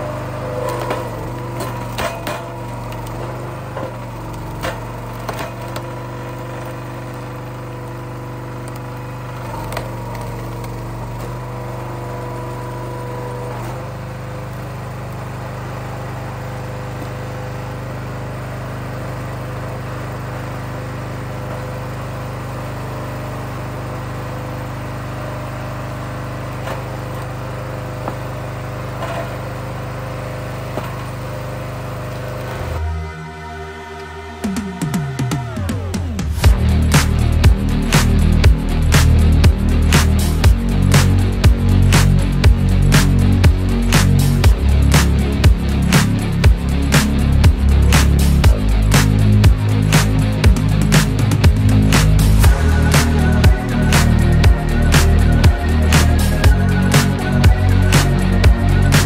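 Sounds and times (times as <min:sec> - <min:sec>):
small gasoline engine running: 0:00.0 - 0:59.0
wood splitting and cracking: 0:00.1 - 0:13.9, 0:26.5 - 0:32.8.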